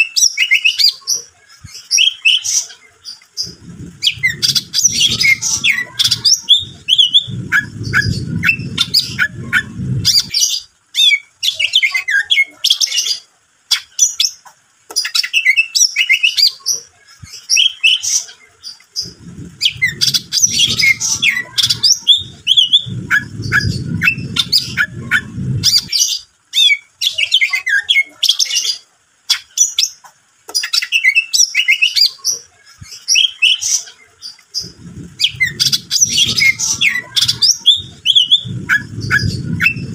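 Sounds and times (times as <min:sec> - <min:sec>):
bird singing: 0:00.0 - 0:14.4, 0:17.3 - 0:32.3, 0:32.9 - 0:39.9
low rumble: 0:03.4 - 0:10.4, 0:19.0 - 0:26.0, 0:34.6 - 0:39.9.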